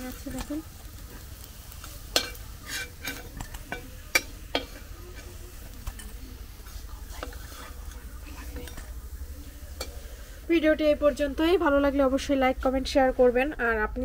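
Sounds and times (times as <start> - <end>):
faint frying sizzle: 0.0 - 14.0
metal spatula scraping a wok: 1.2 - 8.9.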